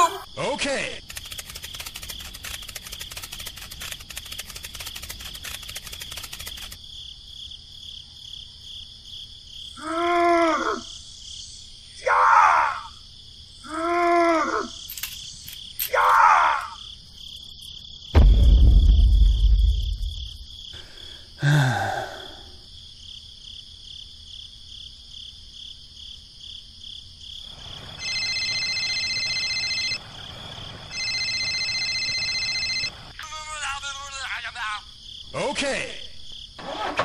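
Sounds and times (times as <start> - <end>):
crickets chirping: 0.0 - 36.9
heavy low rumble: 18.2 - 20.5
electronic phone ring: 28.0 - 30.0, 30.9 - 33.2.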